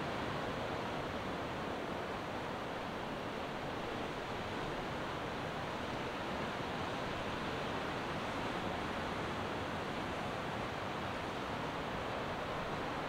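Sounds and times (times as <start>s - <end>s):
sea: 0.0s - 13.0s
wind: 0.0s - 13.0s.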